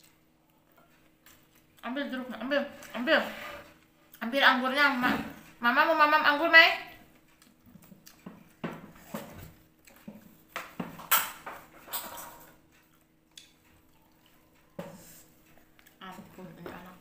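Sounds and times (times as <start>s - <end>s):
chewing smacks and clicks: 7.1s - 8.6s, 9.8s - 10.2s, 12.7s - 14.8s, 15.4s - 16.0s.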